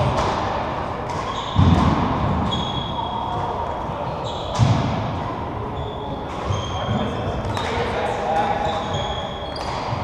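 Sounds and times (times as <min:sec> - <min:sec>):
shoes squeaking on wooden floor: 0:05.8 - 0:07.7, 0:08.6 - 0:10.0.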